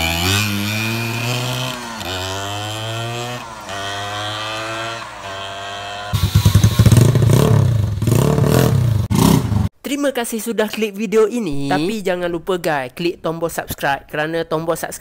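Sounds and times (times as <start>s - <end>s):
loud choppy engine close by: 0.0s - 9.7s
motorcycle engine accelerating: 0.0s - 9.7s.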